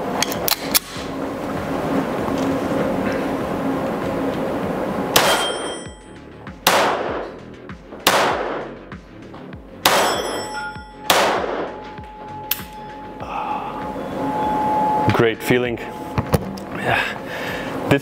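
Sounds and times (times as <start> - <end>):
pistol shots echoing indoors: 5.2 - 5.6, 6.6 - 7.4, 8.0 - 8.8, 9.8 - 11.8.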